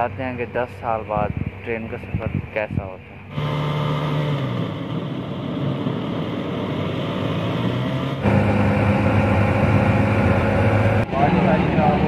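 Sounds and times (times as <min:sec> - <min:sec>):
road noise: 0:00.0 - 0:12.0
motor rickshaw engine running: 0:03.2 - 0:12.0.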